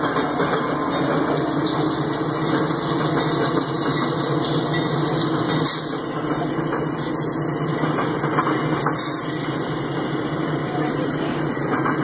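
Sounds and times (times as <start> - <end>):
diesel locomotive engine rumble: 0.0 - 12.0
hiss: 7.2 - 10.3.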